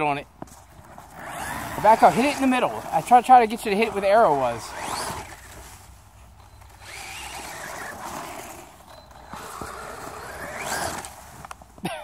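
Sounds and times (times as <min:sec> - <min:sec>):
tyres rushing on snow: 0:00.6 - 0:11.8
electric motor whining: 0:01.1 - 0:05.6, 0:06.5 - 0:11.5.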